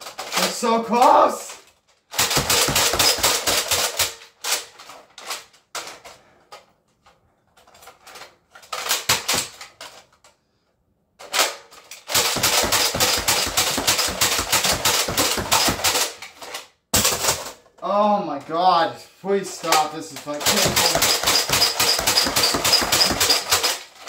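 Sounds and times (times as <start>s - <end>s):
toy dart shots: 20.5s - 23.7s
toy blaster pump strokes: 20.5s - 23.8s.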